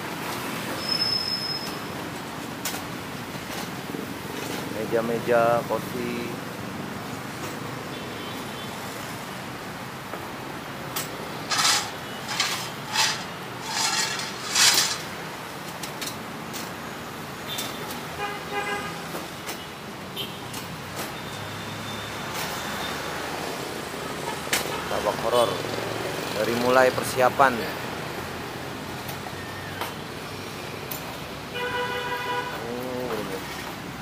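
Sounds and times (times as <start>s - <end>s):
street traffic: 0.0s - 34.0s
harsh scraping or clattering: 11.0s - 16.2s
vehicle horn honking: 31.5s - 32.6s.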